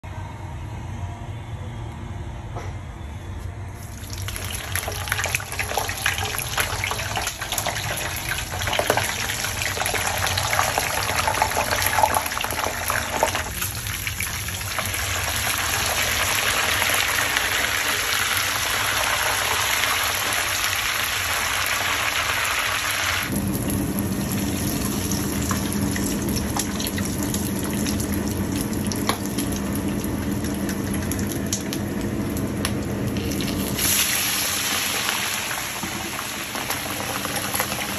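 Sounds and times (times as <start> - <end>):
steady low hum: 0.0 - 4.0, 23.3 - 33.8
oil sizzling and crackling: 3.8 - 37.9.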